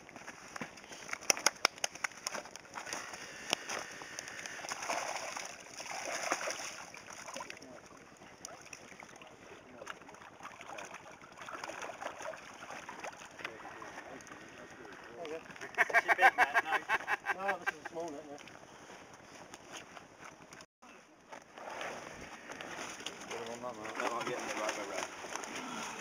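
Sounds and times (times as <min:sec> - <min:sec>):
fish splashing in water: 0:01.0 - 0:15.2.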